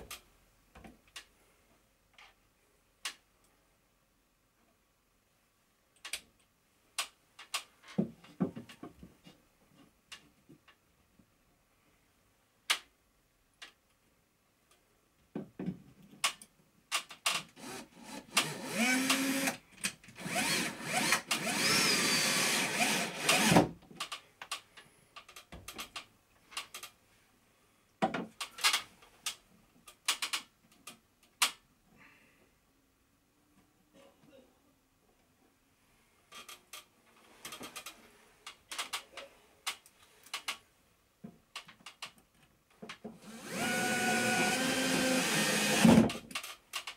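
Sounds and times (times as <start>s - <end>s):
cordless drill driving screws: 17.6s - 19.6s, 20.2s - 23.7s, 43.2s - 46.2s
tools clicking and knocking: 44.8s - 46.9s.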